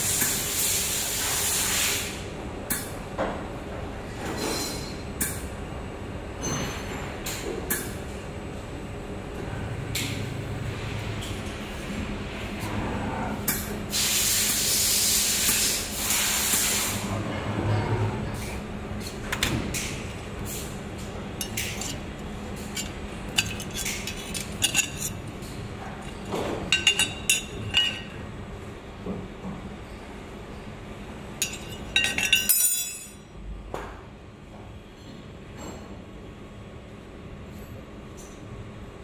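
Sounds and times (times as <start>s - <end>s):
steady electrical hum: 0.0s - 39.0s
metallic clinks: 31.4s - 33.2s.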